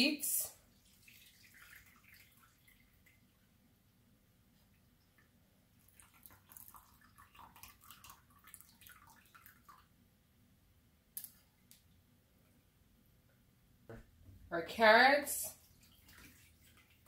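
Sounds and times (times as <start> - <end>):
liquid dripping into a glass bowl: 5.2 - 9.9.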